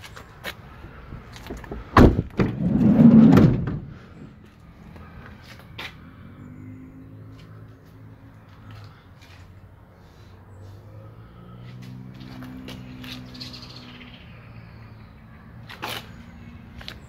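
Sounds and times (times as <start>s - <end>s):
van door thud: 1.5s - 4.0s
sliding door running along track: 2.5s - 3.8s.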